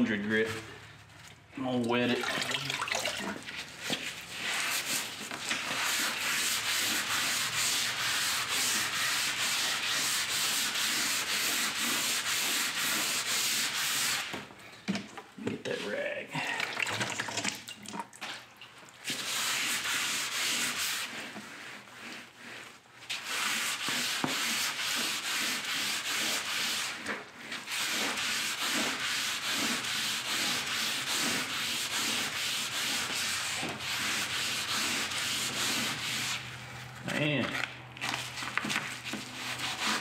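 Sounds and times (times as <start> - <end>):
sandpaper rasping on metal: 4.0 - 14.4, 19.1 - 36.7, 38.9 - 40.0.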